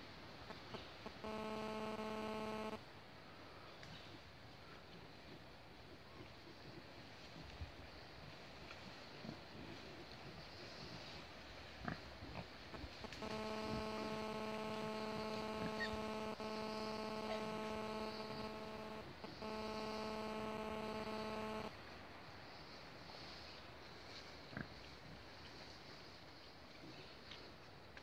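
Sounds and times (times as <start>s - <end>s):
faint rustles and ticks: 0.3s - 2.8s, 3.6s - 22.0s, 22.6s - 28.0s
steady buzzing hum: 0.4s - 2.9s, 12.7s - 21.9s.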